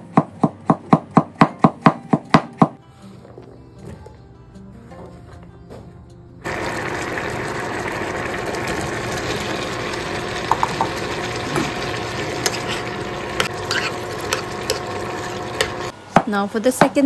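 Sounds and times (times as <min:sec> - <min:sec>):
food sizzling in a pan: 0:06.4 - 0:16.6.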